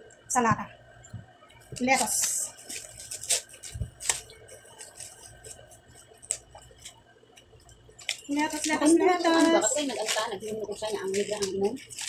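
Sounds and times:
plastic bag crinkling: 1.7 - 12.0
lettuce leaves rustling: 1.8 - 7.0, 7.9 - 12.0.

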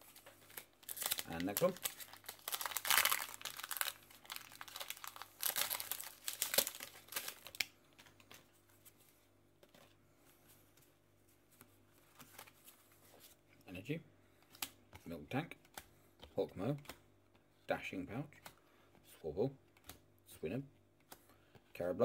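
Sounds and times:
plastic wrapper crinkling and tearing: 0.0 - 8.4.

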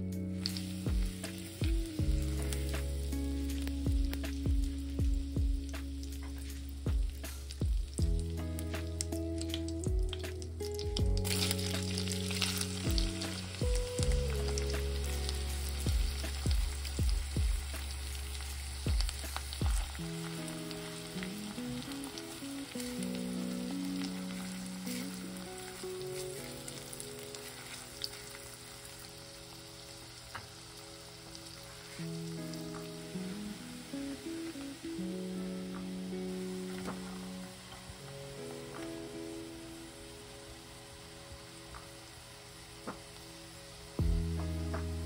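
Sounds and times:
background music with bass: 0.0 - 27.4, 43.8 - 45.0
onion sizzling in butter: 0.2 - 45.0.

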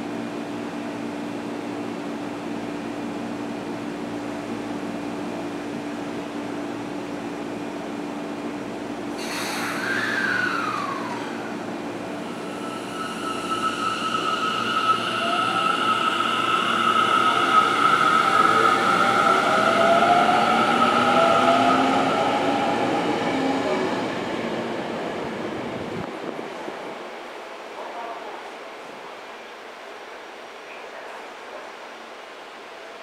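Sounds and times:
electric train humming: 0.0 - 26.1
air brake hiss: 9.1 - 11.1.

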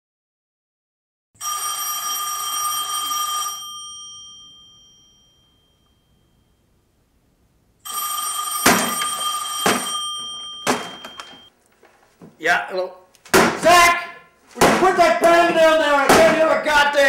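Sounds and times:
telephone bell ringing: 1.4 - 6.7, 7.8 - 11.5.

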